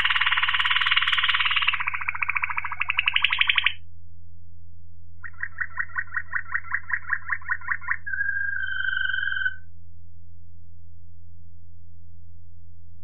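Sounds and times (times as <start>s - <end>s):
canary singing: 0.0s - 3.8s, 5.2s - 9.7s.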